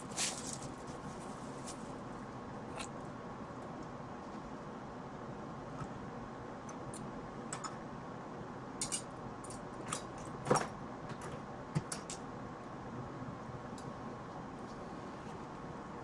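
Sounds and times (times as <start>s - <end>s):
steady hiss: 0.0s - 2.3s.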